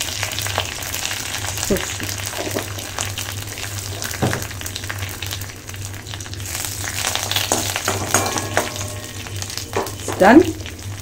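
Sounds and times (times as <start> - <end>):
spices sizzling in hot oil: 0.0 - 11.0
metal spoon scraping a pan: 7.3 - 10.1.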